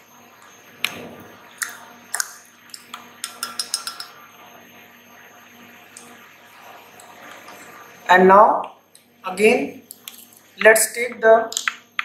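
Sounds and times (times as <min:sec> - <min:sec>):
glassware clinking: 0:03.2 - 0:04.2.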